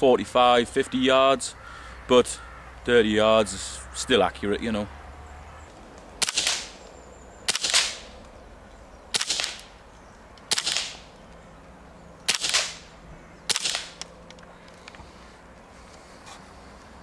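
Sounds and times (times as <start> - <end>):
silenced rifle shots: 6.2 - 8.2, 9.1 - 9.8, 10.4 - 11.2, 12.2 - 14.2.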